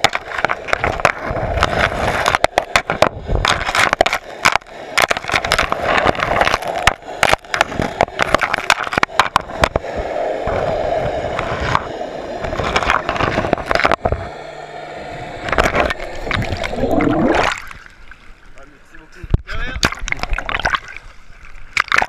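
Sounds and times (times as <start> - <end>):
underwater pebbles clicking together: 0.0 - 9.8, 19.4 - 22.0
water rushing: 0.0 - 22.0.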